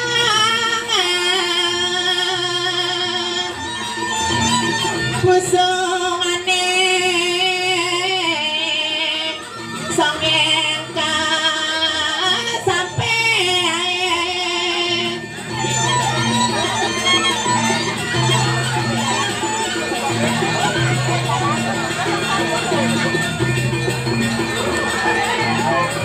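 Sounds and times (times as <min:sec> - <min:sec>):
woman singing with vibrato: 0:00.0 - 0:03.8, 0:05.2 - 0:15.9
traditional instrumental accompaniment: 0:00.0 - 0:26.0.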